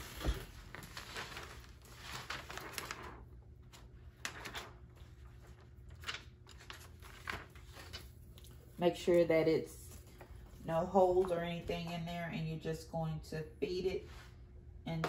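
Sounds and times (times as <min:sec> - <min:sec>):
plastic pouch rustling and crinkling: 0:00.0 - 0:03.2.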